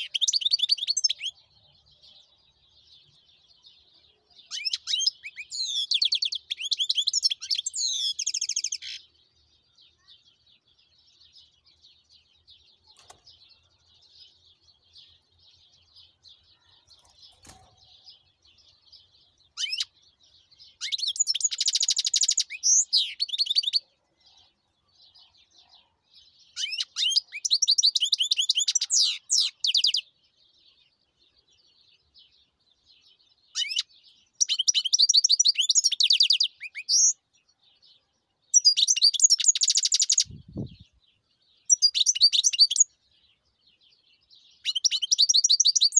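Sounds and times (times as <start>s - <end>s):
bird twittering: 4.5s - 9.0s, 19.6s - 19.9s, 20.8s - 23.8s, 33.5s - 37.2s, 38.6s - 40.9s, 41.7s - 42.9s, 44.6s - 45.9s.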